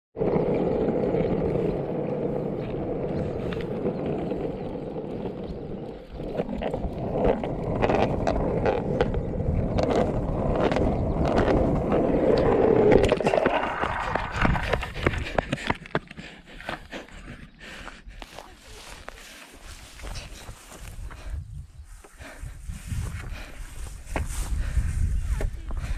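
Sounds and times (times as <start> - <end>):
skateboard wheels rumbling on asphalt: 0.2 - 25.9.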